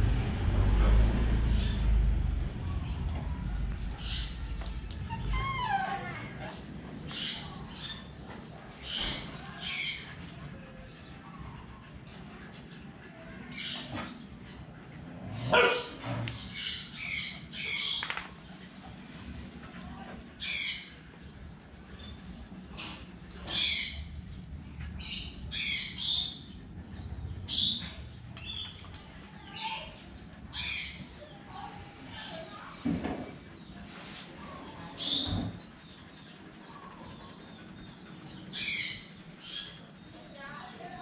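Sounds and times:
low background hum: 0:00.0 - 0:41.0
high-pitched animal calls: 0:03.8 - 0:06.7.

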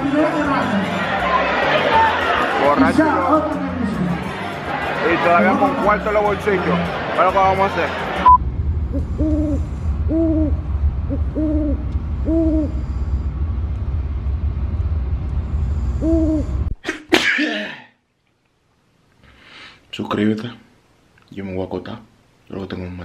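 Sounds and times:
low rumble of car on road: 0:08.3 - 0:16.7.

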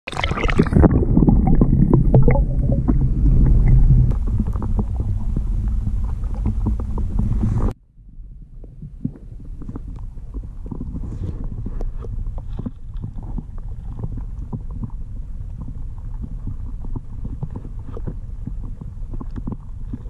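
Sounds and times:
muffled underwater rumble: 0:00.1 - 0:20.0
small clicks and crackles: 0:08.9 - 0:20.0.

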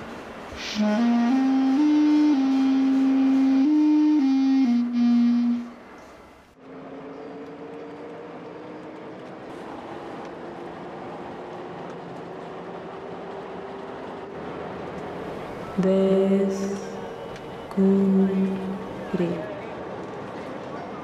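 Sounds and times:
flute-like held notes: 0:00.6 - 0:05.9.

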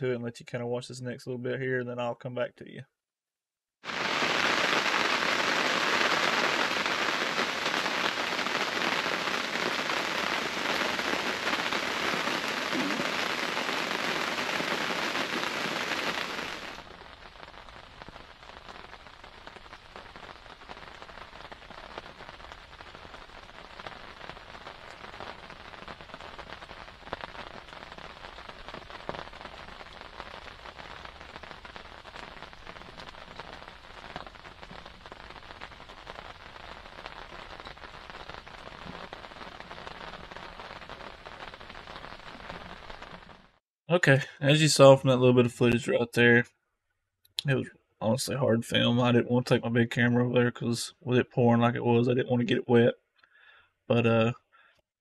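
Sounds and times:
heavy rain: 0:03.8 - 0:44.9.

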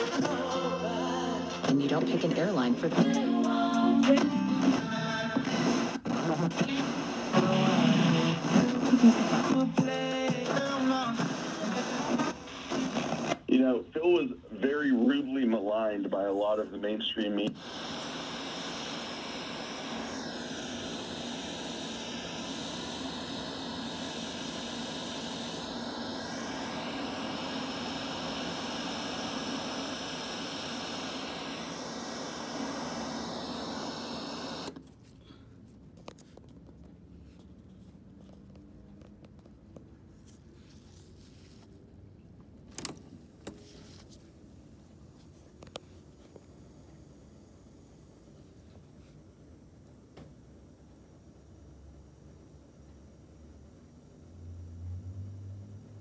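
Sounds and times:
radio static hiss with whistles: 0:05.4 - 0:34.8.

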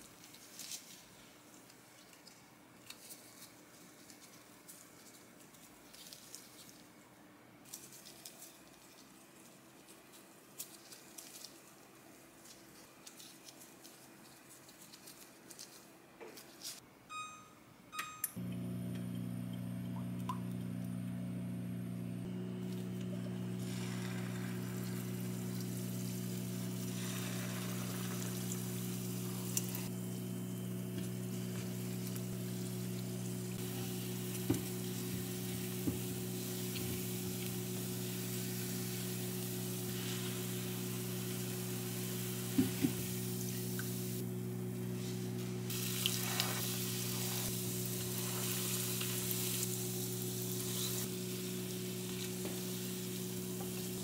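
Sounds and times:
gloved hands rustling dough: 0:00.0 - 0:16.8, 0:22.7 - 0:29.9, 0:30.8 - 0:54.0
cooktop beeps: 0:17.1 - 0:21.0
low hob hum: 0:17.2 - 0:54.0
doughnuts sizzling in oil: 0:22.3 - 0:54.0
oil pouring: 0:22.6 - 0:29.7.

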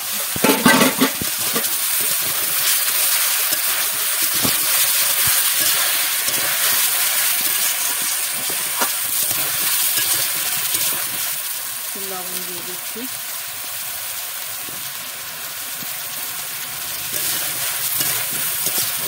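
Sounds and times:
vegetables sizzling in oil: 0:00.0 - 0:19.0
metal spatula scraping: 0:00.2 - 0:11.2, 0:17.1 - 0:19.0.

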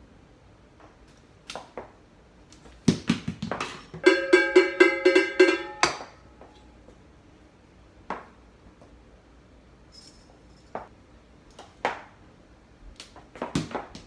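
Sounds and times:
wooden spoon striking ringing pot: 0:04.0 - 0:06.2.

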